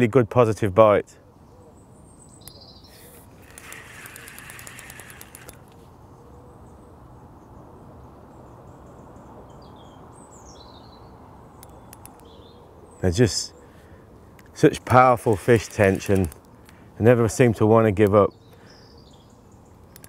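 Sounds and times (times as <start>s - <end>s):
faint birds chirping: 0.6s - 20.0s
fishing reel whirring and clicking: 3.4s - 5.8s, 15.2s - 16.4s.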